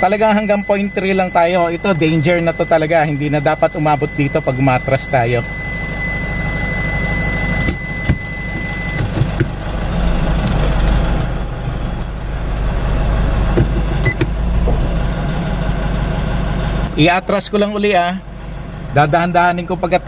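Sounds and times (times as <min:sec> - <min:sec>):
parking sensor buzzer tone: 0:00.0 - 0:09.4, 0:11.0 - 0:12.9
pickup engine running: 0:05.5 - 0:19.9.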